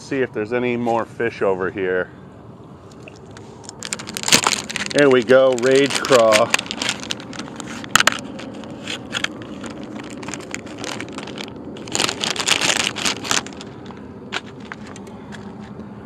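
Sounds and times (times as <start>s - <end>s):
plastic bag crinkling: 3.2s - 15.6s.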